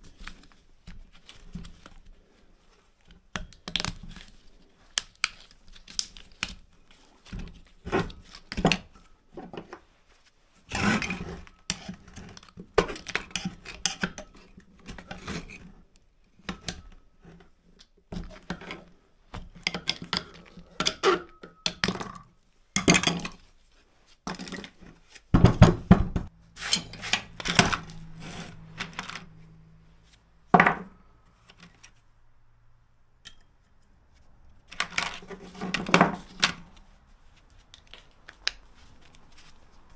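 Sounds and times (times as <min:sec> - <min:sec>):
metal and plastic parts clattering: 0:24.3 - 0:29.3, 0:34.7 - 0:36.7.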